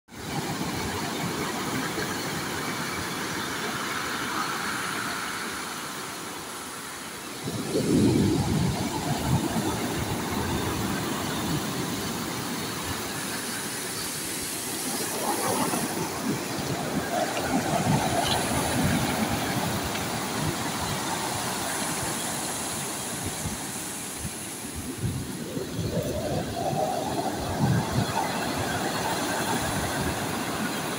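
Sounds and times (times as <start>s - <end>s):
waves breaking on pebble beach: 6.8s - 30.9s.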